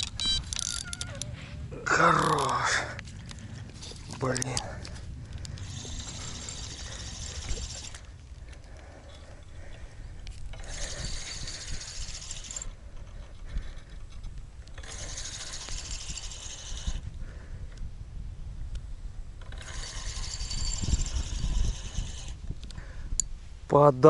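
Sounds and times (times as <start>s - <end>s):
spinning reel whirring: 0.0s - 1.3s, 4.2s - 8.2s, 10.5s - 17.2s, 19.4s - 22.7s.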